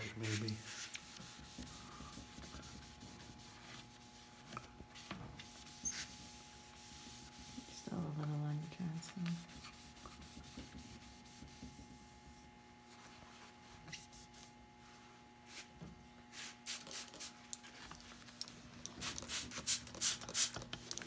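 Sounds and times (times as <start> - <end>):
paper towel rubbing wood: 0.0 - 7.8, 9.2 - 14.5.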